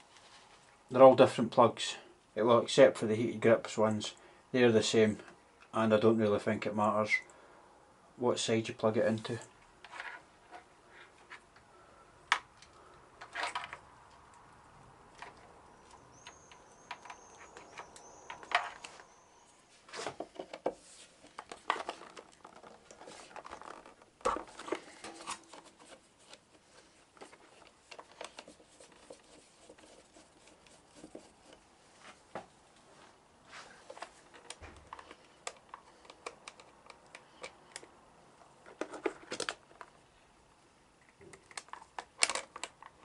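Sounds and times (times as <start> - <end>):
plastic rustling: 19.8 - 32.3.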